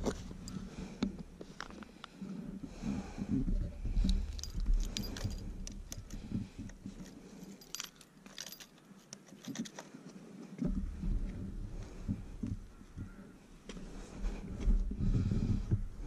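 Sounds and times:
keys jangling and clicking: 4.0s - 6.2s, 7.0s - 9.8s.

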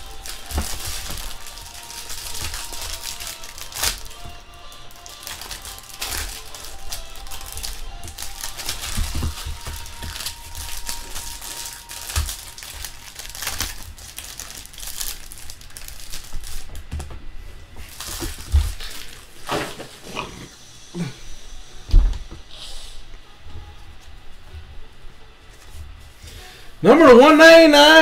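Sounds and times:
cards shuffling: 0.0s - 16.7s
wrappers crinkling and tearing: 0.0s - 17.0s, 17.8s - 20.0s.

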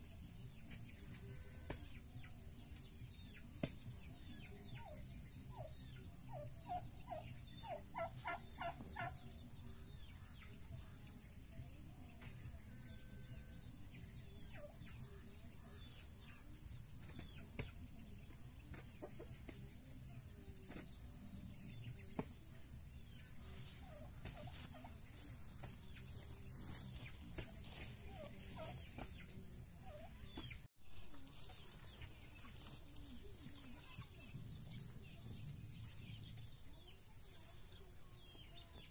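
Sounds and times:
poultry calling: 6.4s - 9.3s, 27.6s - 29.0s.

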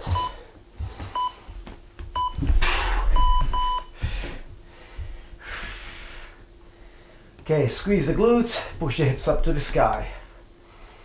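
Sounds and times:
interval timer beeping: 3.2s - 3.9s.

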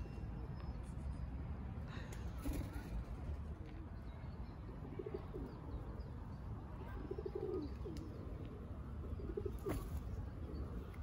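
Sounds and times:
pigeons cooing: 7.0s - 10.9s.

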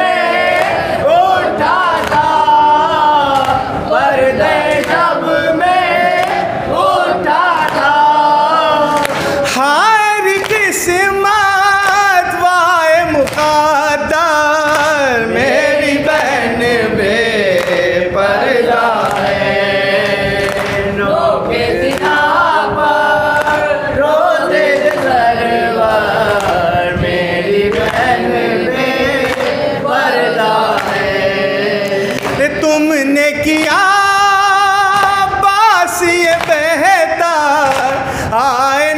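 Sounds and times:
man chanting a lament: 7.3s - 21.4s, 22.2s - 38.9s.

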